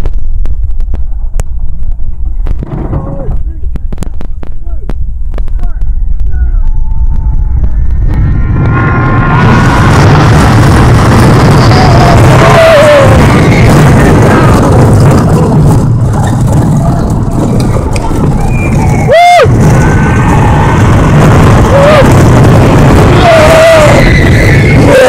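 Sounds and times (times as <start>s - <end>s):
wind rush on microphone: 0.0s - 25.0s
rider screaming: 6.4s - 15.7s, 18.4s - 25.0s.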